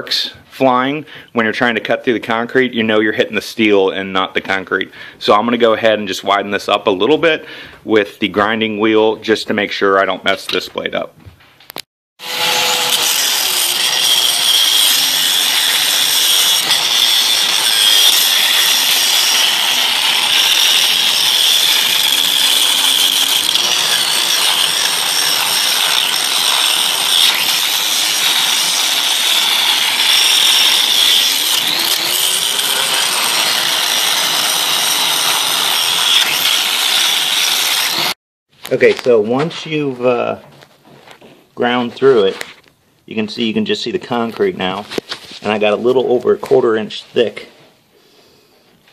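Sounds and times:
angle grinder grinding steel: 12.2 - 38.2.

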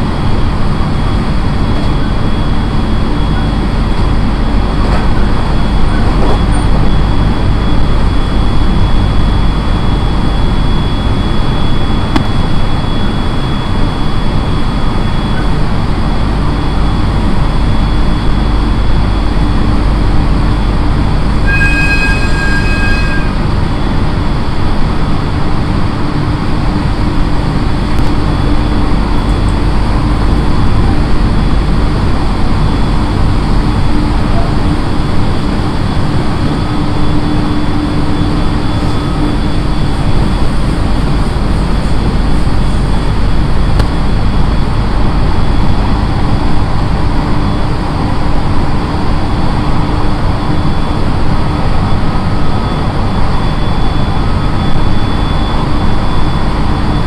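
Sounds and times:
high ringing tone: 0.0 - 47.8, 49.2 - 57.0
electric train hum and rumble: 0.0 - 57.0.

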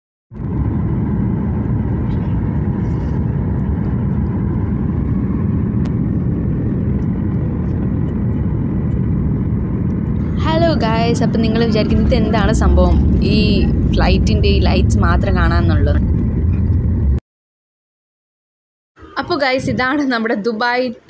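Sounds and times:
faint steady whine: 0.4 - 17.2
jet engine rumble in cabin: 0.4 - 17.2
rushing air: 0.4 - 17.2.

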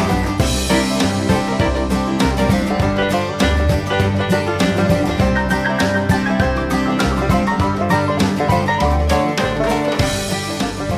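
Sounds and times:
plucked strings: 0.0 - 10.9
steady drum beat: 0.0 - 10.9.

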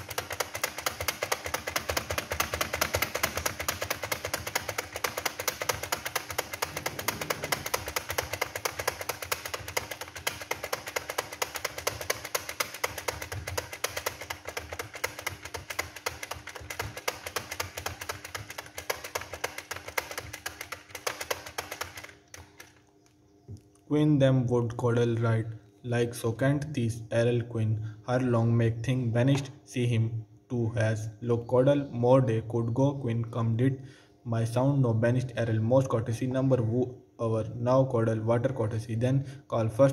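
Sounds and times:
fast typing on keyboard: 0.0 - 22.9.

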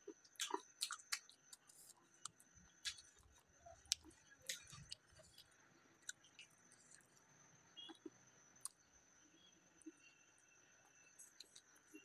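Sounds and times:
person chewing with lip smacks: 0.2 - 7.1.

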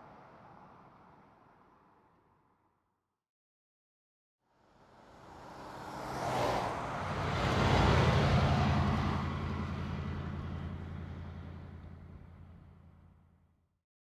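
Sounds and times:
vehicle passing by: 4.9 - 13.0.

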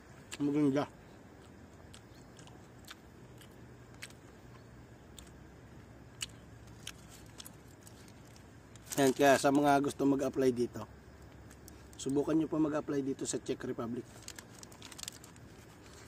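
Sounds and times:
faint low hum: 0.0 - 16.0
person chewing: 1.1 - 5.4, 6.1 - 8.9.

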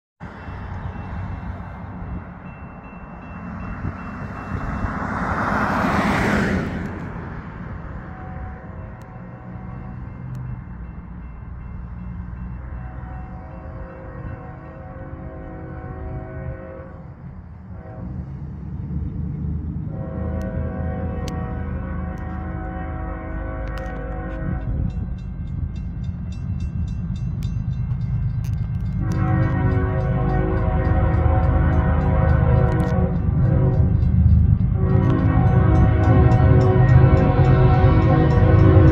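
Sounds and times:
train rumble: 0.2 - 38.9
locomotive air horn: 7.8 - 10.0, 12.8 - 18.5, 19.8 - 25.0, 29.0 - 38.9.

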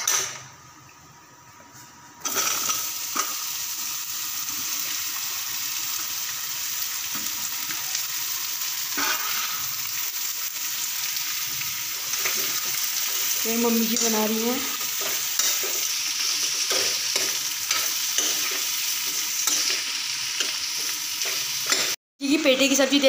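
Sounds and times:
seeds frying in oil: 2.2 - 22.0
loud sizzle: 2.2 - 23.0.

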